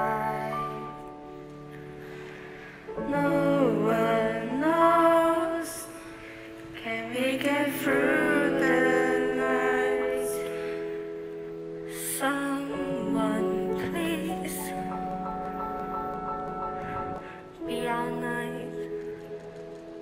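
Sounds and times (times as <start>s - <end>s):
person singing: 0.0s - 2.0s, 2.9s - 11.2s, 11.9s - 20.0s
sustained backing chords: 7.1s - 20.0s.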